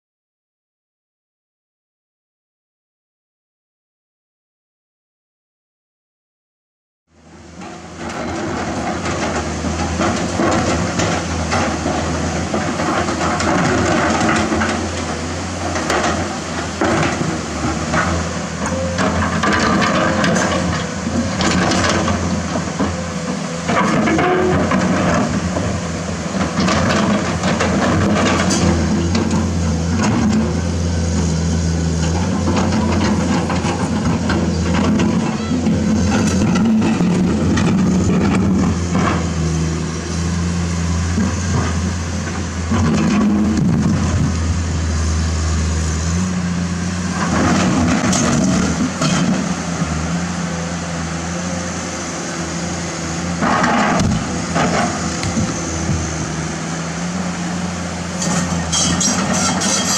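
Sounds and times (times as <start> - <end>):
excavator diesel engine running: 7.1 - 59.9
bucket scraping rock and gravel: 58.2 - 59.9.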